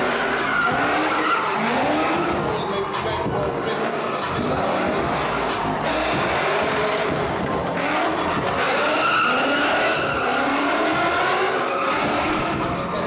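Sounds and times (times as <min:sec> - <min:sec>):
car engine at high revs: 0:00.0 - 0:13.0
tyres screeching: 0:00.0 - 0:13.0.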